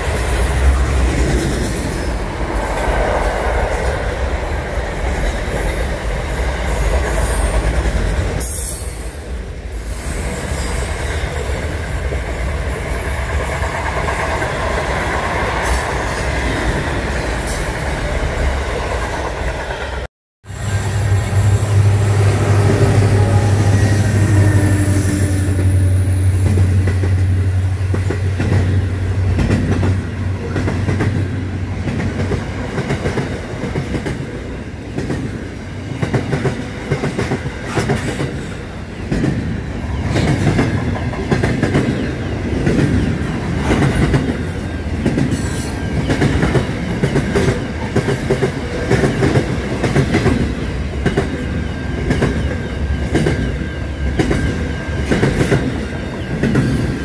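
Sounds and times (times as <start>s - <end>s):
train wheels clickety-clack: 0.0s - 8.9s, 10.0s - 20.1s, 27.9s - 57.0s
locomotive engine drone: 20.5s - 29.4s.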